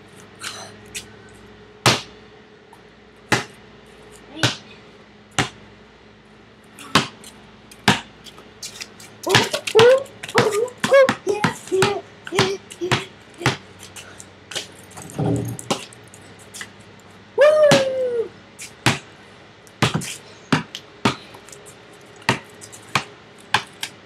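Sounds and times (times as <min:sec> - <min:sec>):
basketball bouncing on pavement: 0:01.8 - 0:02.2, 0:03.3 - 0:03.6, 0:04.3 - 0:04.7, 0:05.3 - 0:05.7, 0:06.9 - 0:15.9, 0:18.8 - 0:19.1, 0:19.8 - 0:21.3, 0:22.2 - 0:24.0.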